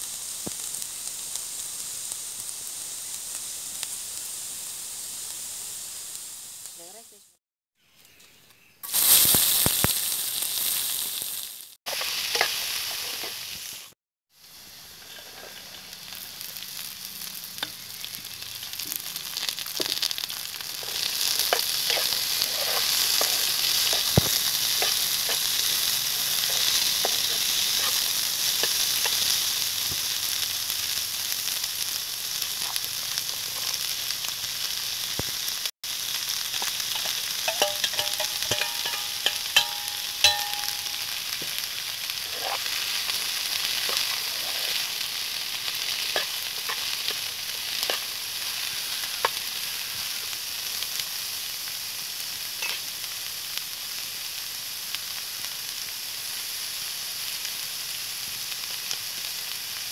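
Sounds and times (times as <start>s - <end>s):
vegetables sizzling in oil: 0.0s - 59.9s
spoon scraping a pan: 11.9s - 13.4s, 20.7s - 29.4s, 36.5s - 41.6s, 42.2s - 45.1s, 45.8s - 49.4s, 52.6s - 52.8s.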